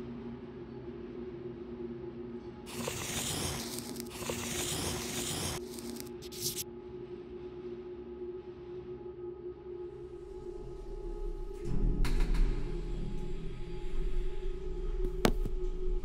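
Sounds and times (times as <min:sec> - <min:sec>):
paper pages rustling: 0:02.7 - 0:06.6.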